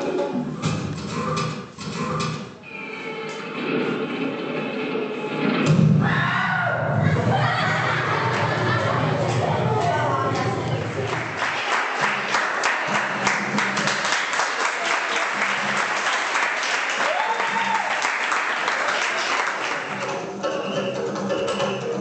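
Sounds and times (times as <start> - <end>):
audience applauding: 8.1 - 20.2.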